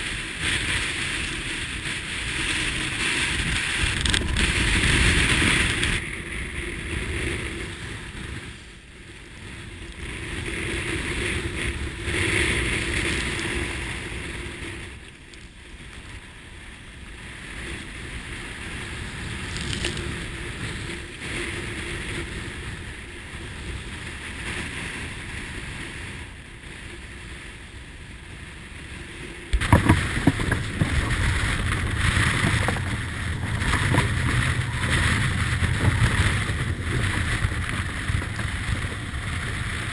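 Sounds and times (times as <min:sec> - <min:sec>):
wind buffeting microphone: 0:00.0 - 0:39.9
rushing water: 0:29.5 - 0:39.9.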